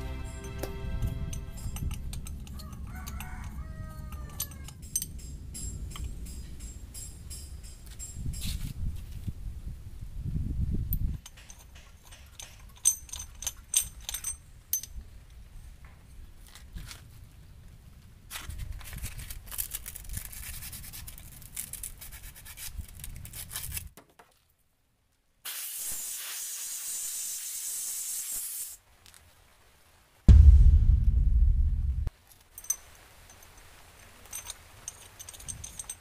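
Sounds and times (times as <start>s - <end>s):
metallic clicks of tools: 0.4s - 8.7s, 10.9s - 15.0s, 34.3s - 36.0s
steady hiss: 25.4s - 35.1s
loud low rumble: 30.3s - 32.1s.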